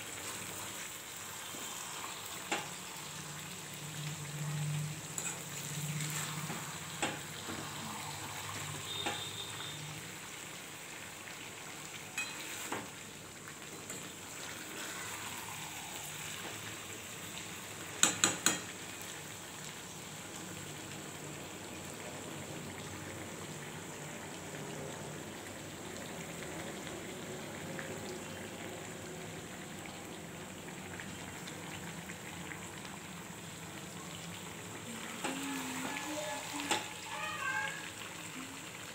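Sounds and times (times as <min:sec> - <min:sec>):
food sizzling in oil: 0:00.0 - 0:38.9
metal spatula scraping pan: 0:05.2 - 0:06.5
spatula clicking on pan: 0:18.0 - 0:18.7.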